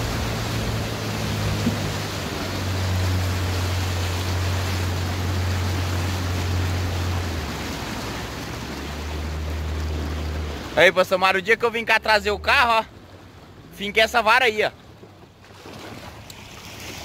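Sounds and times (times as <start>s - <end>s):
outboard motor running: 0.0s - 17.0s
wind and water rushing: 0.0s - 17.0s.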